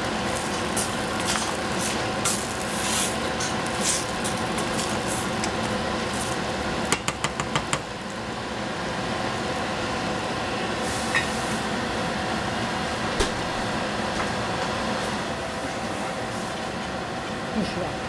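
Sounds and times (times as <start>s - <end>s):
saucepan hissing: 0.1s - 6.8s.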